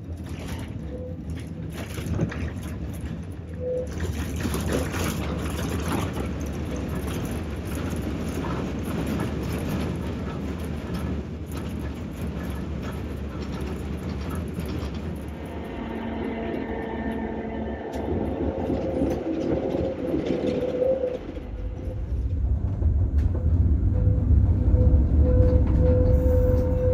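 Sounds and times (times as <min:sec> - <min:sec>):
wheels clicking on track: 0:00.0 - 0:15.9, 0:17.1 - 0:26.9
tram rumbling on rails: 0:00.0 - 0:26.9
steady hum: 0:14.3 - 0:26.9.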